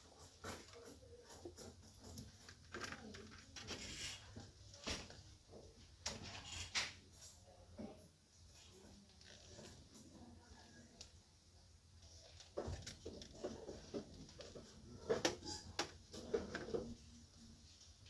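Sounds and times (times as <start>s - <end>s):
plastic items knocking and clattering: 12.2s - 17.0s.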